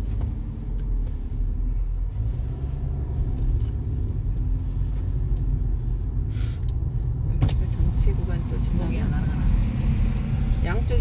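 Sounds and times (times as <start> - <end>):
car engine and tyres rumbling: 0.0 - 11.0.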